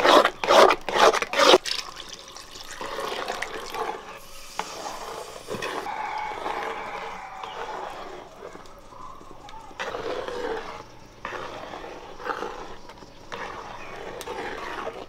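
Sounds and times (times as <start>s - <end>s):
metal spoon scraping a pan: 0.0s - 15.0s
liquid pouring: 1.6s - 5.8s.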